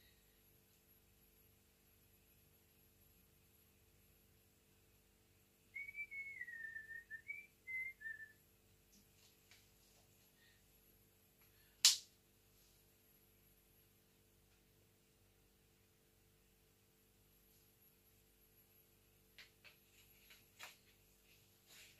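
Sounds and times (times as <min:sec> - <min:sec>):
person whistling a tune: 0:05.8 - 0:08.4.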